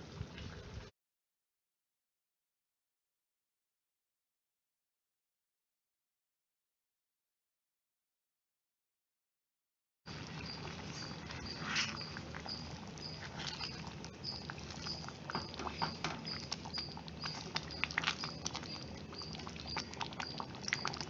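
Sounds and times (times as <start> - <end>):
stirring thick gravy: 10.1 - 21.0
wooden spatula scraping clay pot: 10.4 - 21.0.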